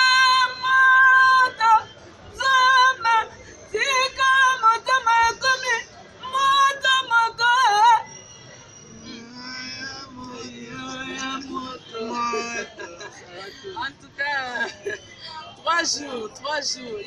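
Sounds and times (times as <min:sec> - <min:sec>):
high voice singing unaccompanied: 0:09.0 - 0:12.7.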